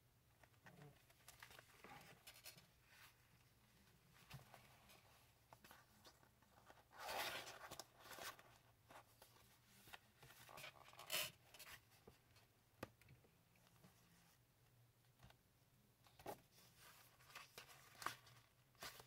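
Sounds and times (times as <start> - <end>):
paper pages rustling: 16.2 - 19.0.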